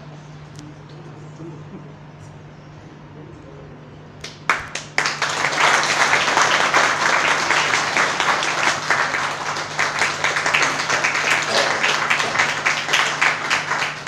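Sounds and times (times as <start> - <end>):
crowd applauding: 4.2 - 14.0.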